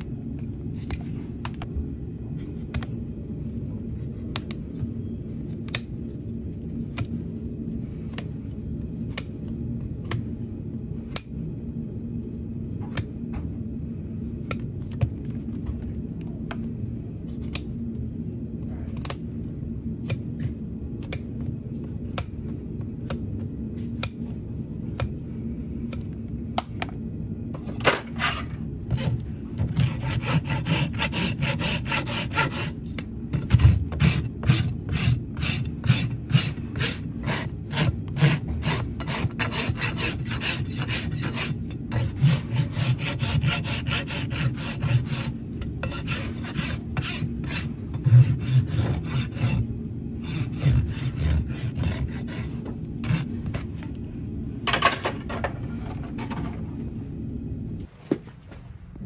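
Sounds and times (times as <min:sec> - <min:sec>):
hoof rasp scraping: 0:28.1 - 0:32.8, 0:33.4 - 0:49.6.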